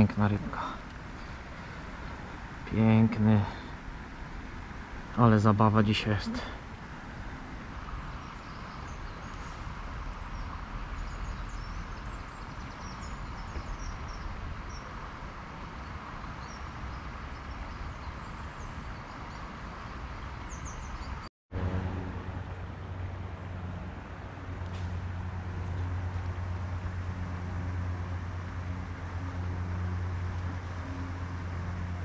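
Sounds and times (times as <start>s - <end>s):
distant road traffic rumble: 0.0s - 32.0s
small birds chirping: 7.9s - 21.3s.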